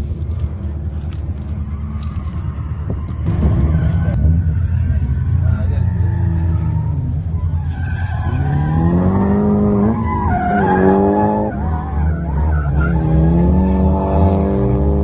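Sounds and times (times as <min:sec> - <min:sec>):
car engine revving hard: 0:08.3 - 0:15.0.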